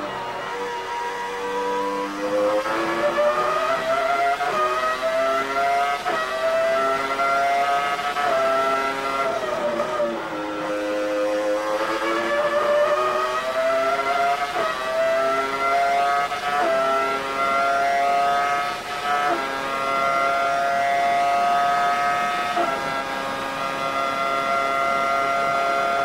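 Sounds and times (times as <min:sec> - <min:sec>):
racing car engine at full throttle: 0:00.0 - 0:26.0.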